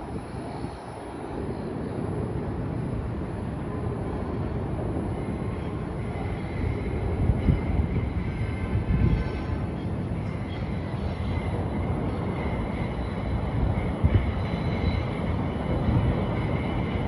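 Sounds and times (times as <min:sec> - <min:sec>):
city traffic rumble: 0:00.0 - 0:17.0
wind gusting on microphone: 0:00.0 - 0:17.0
faint high squeal: 0:05.3 - 0:17.0.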